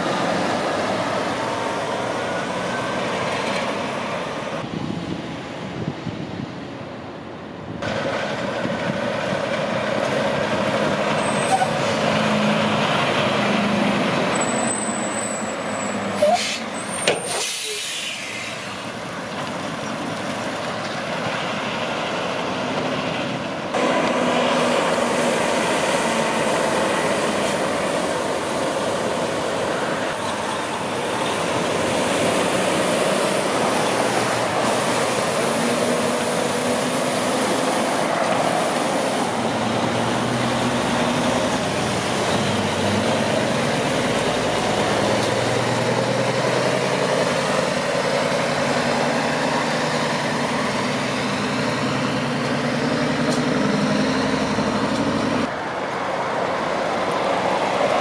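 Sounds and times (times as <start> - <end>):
diesel trucks passing: 0.0 - 58.0
air-brake hisses: 16.2 - 18.8.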